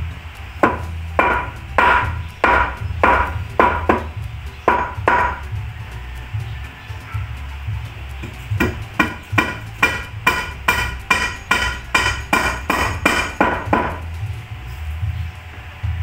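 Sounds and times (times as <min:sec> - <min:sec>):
hammer striking wood with metallic ring: 0:00.6 - 0:05.5, 0:08.2 - 0:14.1.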